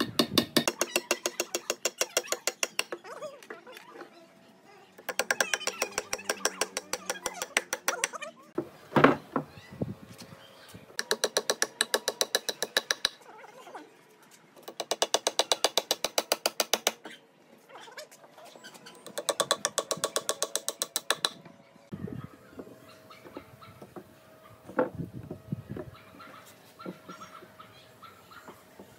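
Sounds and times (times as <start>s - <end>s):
hammer driving nails into wood: 14.6s - 17.0s.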